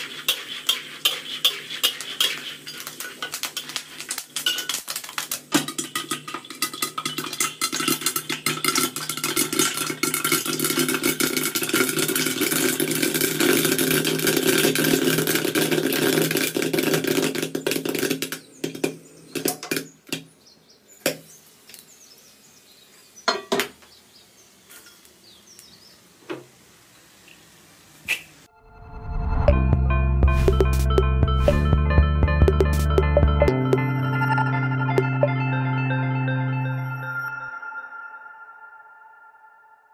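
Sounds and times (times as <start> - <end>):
oil sizzling: 0.0 - 18.2
popcorn popping: 0.0 - 20.3.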